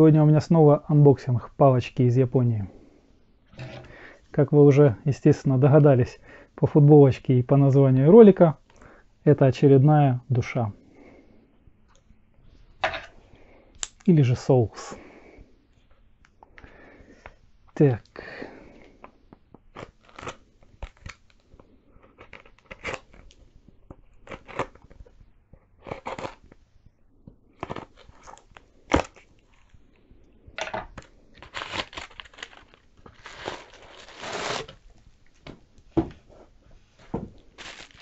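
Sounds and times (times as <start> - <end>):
bubble wrap rustling: 31.0 - 35.0, 37.3 - 38.0
knife cutting cardboard tube: 33.2 - 34.8.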